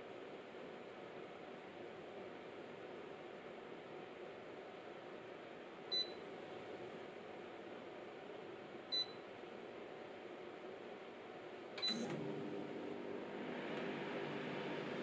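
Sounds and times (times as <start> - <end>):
air conditioner fan running: 0.0 - 15.0
air conditioner beeping: 5.9 - 6.3, 8.9 - 9.3, 11.8 - 15.0
compressor hum: 11.5 - 15.0.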